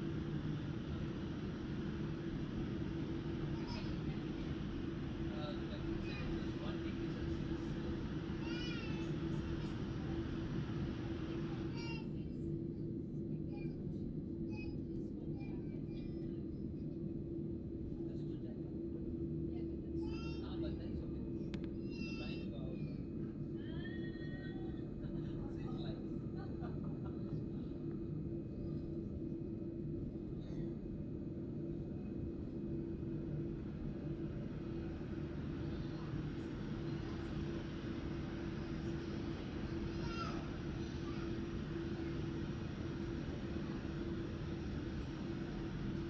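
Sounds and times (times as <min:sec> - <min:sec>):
aircraft cabin hum: 0:00.0 - 0:11.9, 0:24.2 - 0:46.0.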